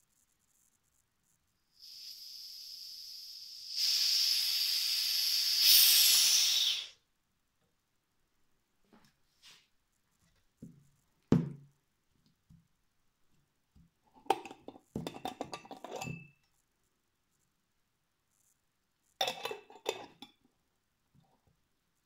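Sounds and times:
glass jar and lid clinking: 0:14.3 - 0:16.4, 0:19.2 - 0:20.4.

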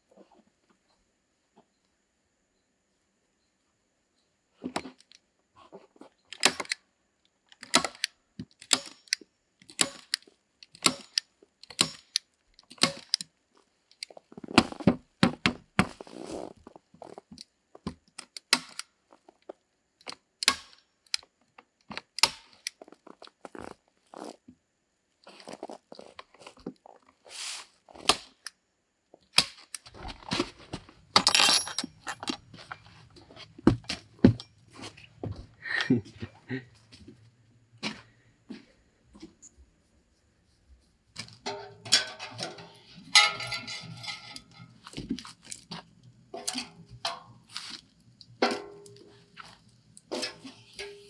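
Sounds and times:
hand tool clicks: 0:07.6 - 0:13.3.

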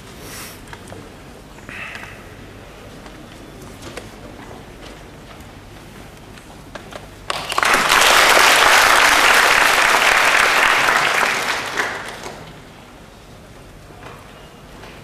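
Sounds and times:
audience applauding: 0:07.3 - 0:12.6.

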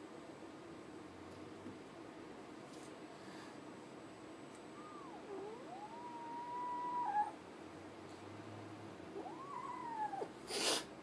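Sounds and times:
kitten meowing: 0:04.8 - 0:07.4, 0:09.2 - 0:10.8
kitten hissing: 0:09.2 - 0:11.0.

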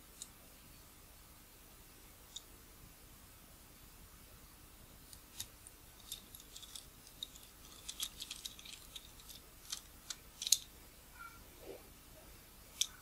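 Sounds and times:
screwdriver clicking and scraping metal: 0:05.4 - 0:10.7.

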